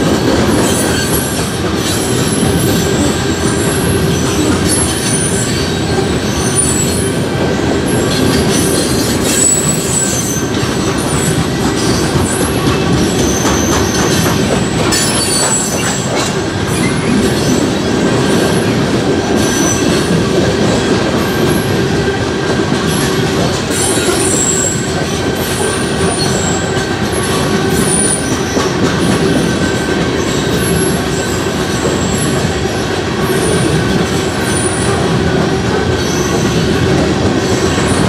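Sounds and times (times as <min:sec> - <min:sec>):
freight train rumbling and rattling: 0:00.0 - 0:38.0
wheels clacking over rail joints: 0:00.0 - 0:38.0
wheel squeals: 0:00.2 - 0:07.2, 0:07.9 - 0:18.4, 0:23.7 - 0:32.4.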